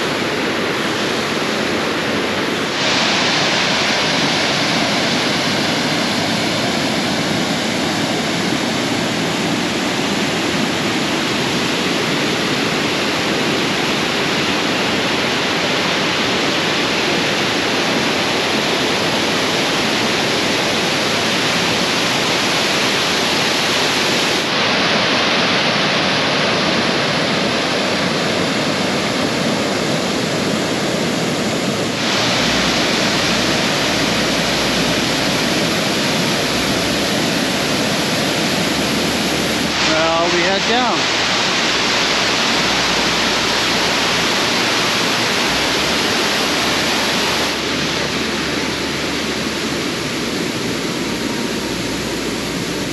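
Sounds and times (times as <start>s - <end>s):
large waterfall rushing: 0.0s - 52.9s.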